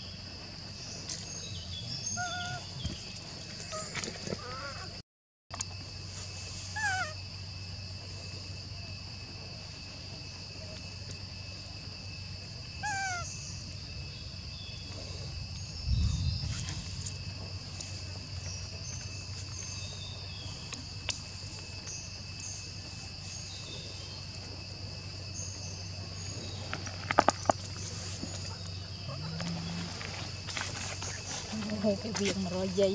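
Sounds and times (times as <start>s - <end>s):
high insect drone: 0.0s - 32.9s
low rumble on microphone: 13.6s - 32.1s.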